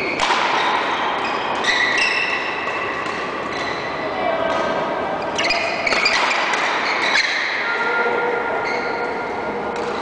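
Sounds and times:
rackets hitting shuttlecock: 0.0 - 3.9, 5.5 - 7.4, 9.7 - 10.0.

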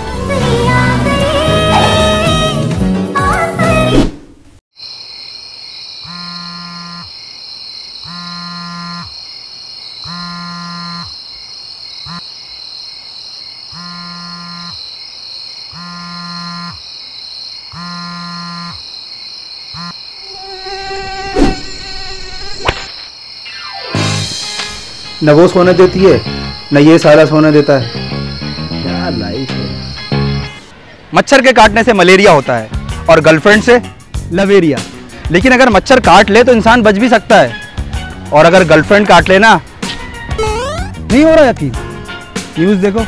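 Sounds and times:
background music: 0.0 - 4.0, 23.7 - 30.7, 31.8 - 43.0
high-pitched insect drone: 4.8 - 22.7, 24.7 - 30.5, 40.4 - 40.9
phone vibrating: 6.1 - 7.1, 8.0 - 9.1, 10.0 - 11.2, 13.8 - 14.8, 15.8 - 16.8, 17.8 - 18.8, 19.8 - 20.0, 40.4 - 41.0.

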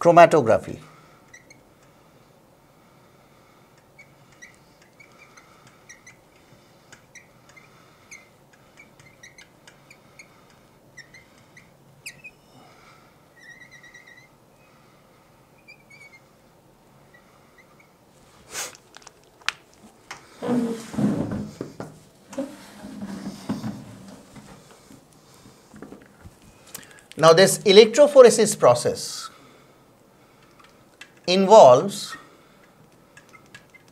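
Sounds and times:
marker squeaking on glass: 1.0 - 1.7, 3.8 - 12.4, 13.4 - 14.4, 15.6 - 16.4, 17.1 - 18.0, 33.2 - 33.9.

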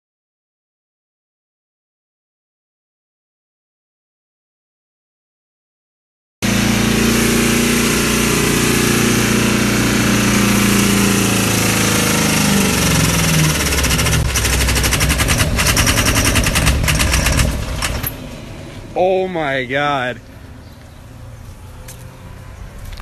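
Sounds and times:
engine running at high revs: 6.4 - 23.0
engine knocking clatter: 6.8 - 18.2.

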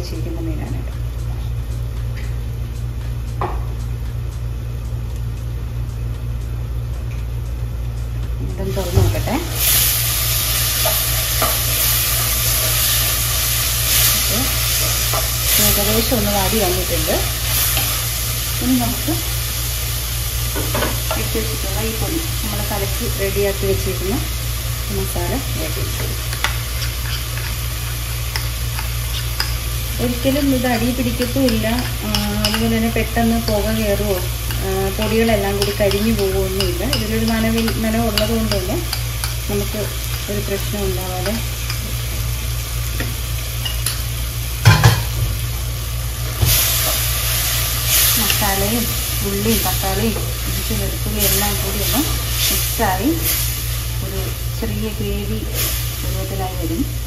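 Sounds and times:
vegetables sizzling in oil: 8.6 - 57.0
spoon scraping and clicking: 26.2 - 40.3.

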